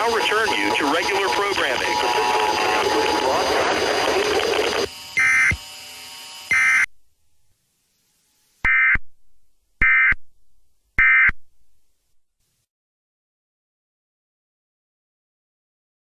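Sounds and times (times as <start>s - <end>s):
raspy warbling data tones: 0.0s - 5.6s
faint steady hum: 0.0s - 12.7s.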